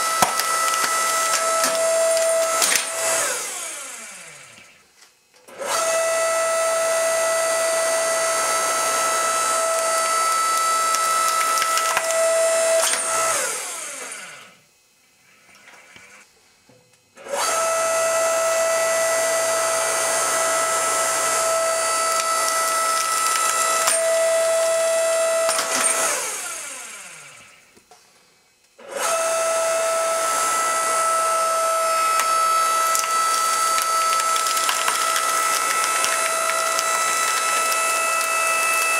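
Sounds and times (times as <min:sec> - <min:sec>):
log splitter motor whining: 0:00.0 - 0:14.6, 0:17.2 - 0:27.8, 0:28.8 - 0:38.9.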